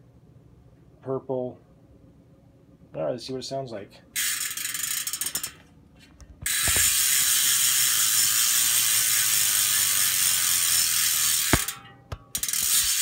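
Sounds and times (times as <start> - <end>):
bicycle hub ratcheting buzz: 4.2 - 5.6, 6.4 - 13.0.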